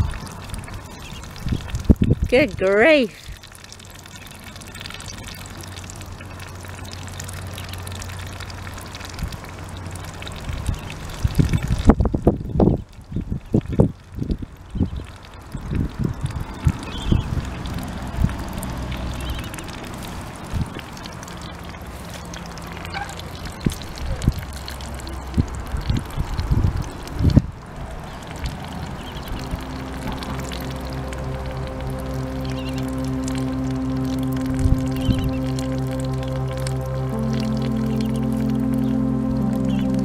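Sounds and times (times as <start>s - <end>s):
wind buffeting microphone: 0.0s - 3.4s, 10.4s - 19.6s, 25.2s - 30.3s
ducklings dabbling in wet mud: 0.0s - 40.0s
steady low hum: 29.0s - 40.0s.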